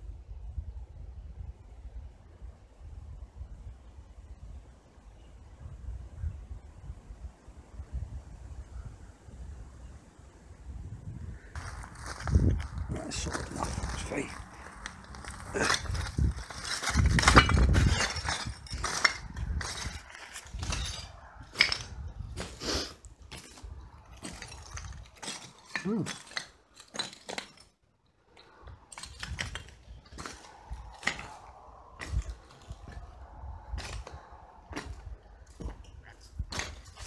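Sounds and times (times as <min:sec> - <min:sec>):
footsteps crunching over rubble: 0:11.5 - 0:37.0
shards clinking and cracking: 0:11.6 - 0:22.6, 0:23.2 - 0:37.0.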